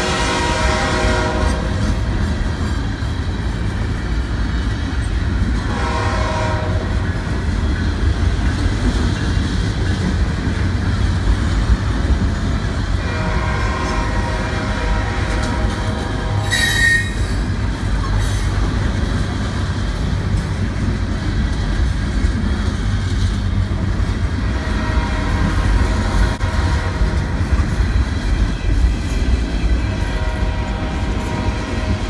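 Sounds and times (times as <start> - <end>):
train wheels rumbling on rails: 0.0 - 32.0
wheel squeal: 16.4 - 17.5.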